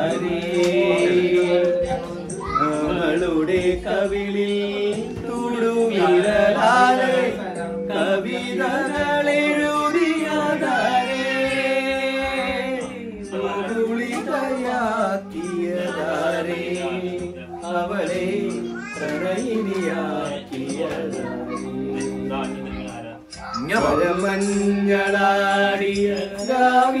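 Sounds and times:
person singing slow melody: 0.0s - 27.0s.

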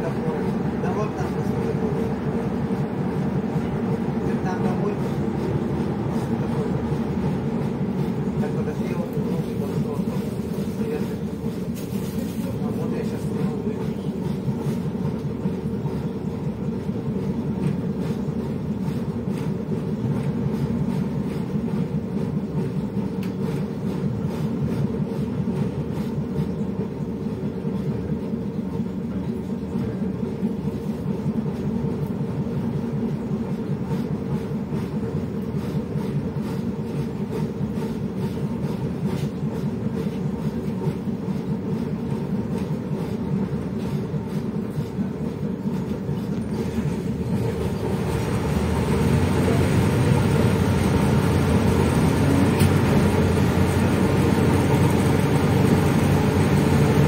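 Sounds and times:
bus engine idling: 33.0s - 57.0s.

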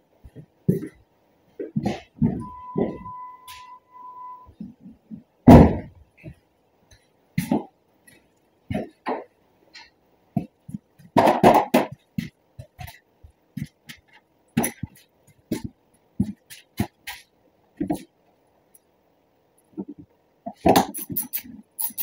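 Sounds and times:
electronic warning chime: 2.4s - 4.5s.

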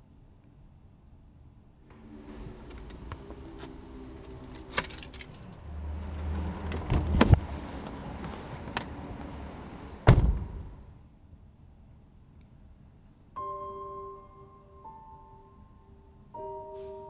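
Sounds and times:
low rumble: 1.8s - 11.0s
clicks and rattles inside car: 2.6s - 9.3s.

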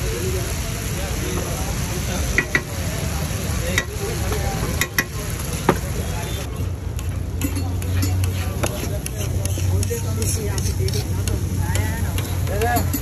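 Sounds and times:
masala sizzling on a griddle: 0.0s - 13.0s
metal spatula clicking on pan: 4.8s - 5.2s.

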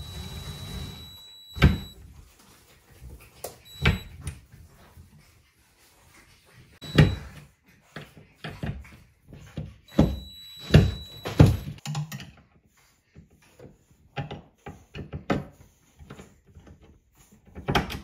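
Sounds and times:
cordless drill whirring: 0.0s - 2.0s, 9.9s - 11.8s.

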